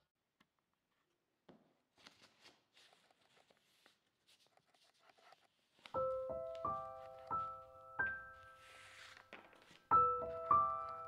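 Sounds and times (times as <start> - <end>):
paper rustling: 1.9 - 7.7, 8.3 - 11.0.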